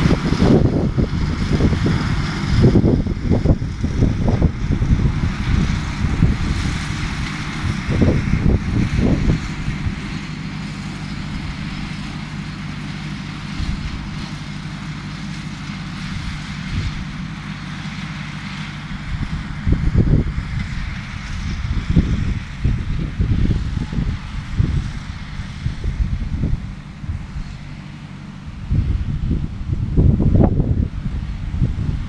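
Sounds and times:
wind buffeting microphone: 0:00.0 - 0:14.4, 0:15.8 - 0:17.3, 0:18.8 - 0:32.0
distant tractor engine drone: 0:00.0 - 0:32.0.

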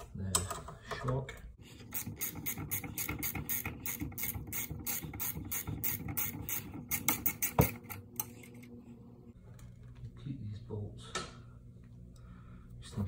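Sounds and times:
ratchet wrench clicking: 0:01.9 - 0:07.8.

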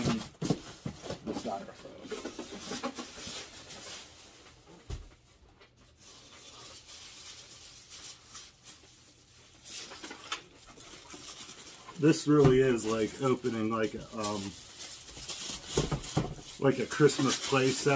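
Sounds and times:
styrofoam and paper rustling: 0:00.0 - 0:17.9
packing crinkling: 0:05.9 - 0:17.9.

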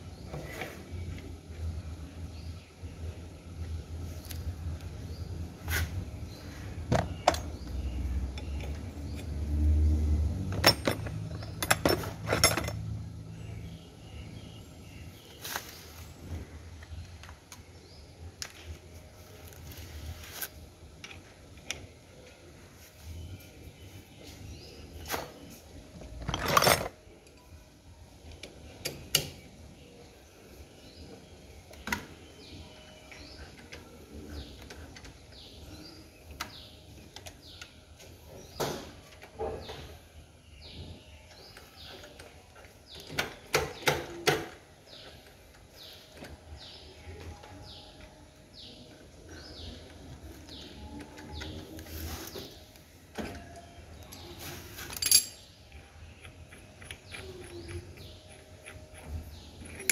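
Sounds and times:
bird chirping: 0:28.4 - 0:59.9
hand tools clinking on metal: 0:54.1 - 0:55.5, 0:59.6 - 0:59.9.

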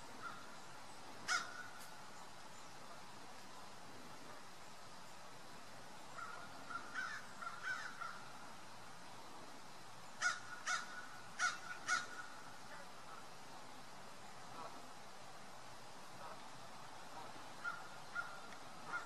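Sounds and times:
bird calling harshly: 0:01.3 - 0:01.8, 0:06.2 - 0:08.2, 0:10.2 - 0:12.4, 0:17.6 - 0:19.0.

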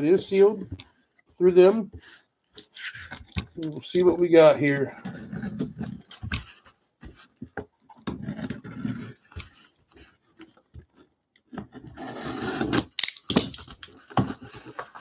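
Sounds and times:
cardboard rubbing and scraping: 0:08.1 - 0:10.2, 0:11.6 - 0:12.9.

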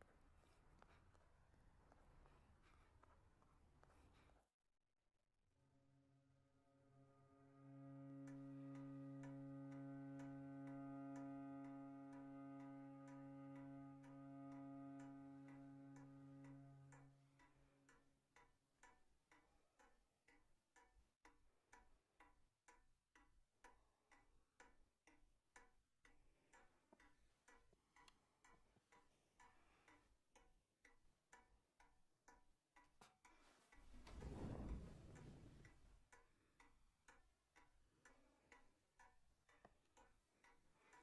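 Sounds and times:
held musical chord: 0:06.9 - 0:17.3
wall clock ticking: 0:07.8 - 0:41.0.

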